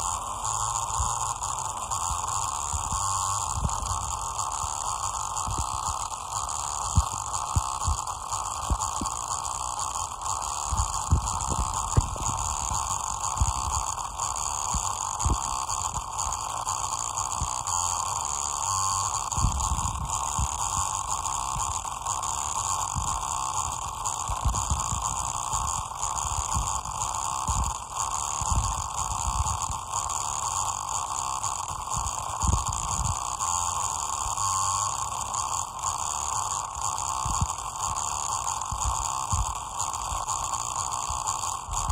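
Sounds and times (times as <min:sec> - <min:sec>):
damaged loudspeaker hum: 0:00.0 - 0:41.9
low bass pulses: 0:10.6 - 0:16.2.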